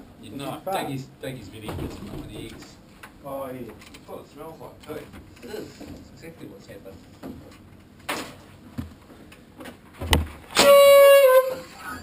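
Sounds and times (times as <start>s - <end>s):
chair thump: 10.0s - 10.8s
air horn blast: 10.5s - 12.0s.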